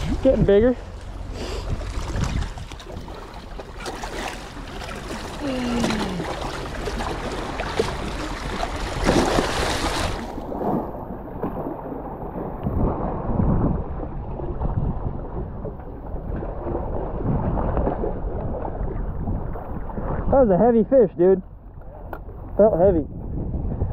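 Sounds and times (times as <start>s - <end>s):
wind on microphone: 0.0s - 3.3s, 5.4s - 23.9s
waves splashing against rocks: 0.0s - 13.2s.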